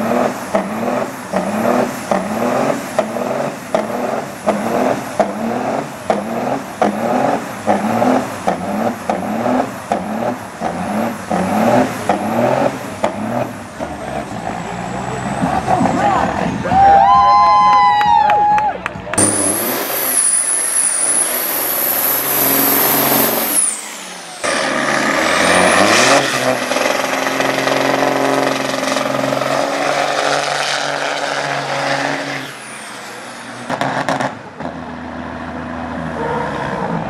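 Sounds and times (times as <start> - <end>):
truck engines revving hard: 0.0 - 17.9, 18.9 - 37.0
high turbo whistle: 19.2 - 24.3.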